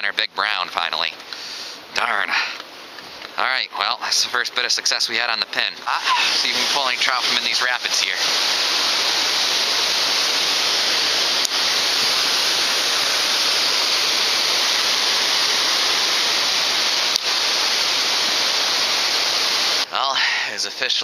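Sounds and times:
water rushing over weir: 0:05.6 - 0:19.9.

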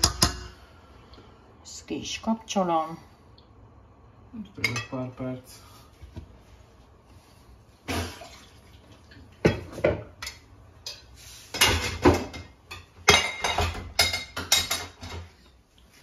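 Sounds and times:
pots and pans clanking: 0:09.4 - 0:15.4.

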